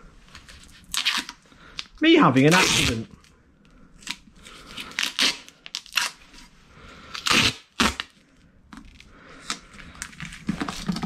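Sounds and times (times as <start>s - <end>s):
duct tape ripping: 0.8s - 1.9s, 2.5s - 3.2s, 4.0s - 6.2s, 7.1s - 8.2s.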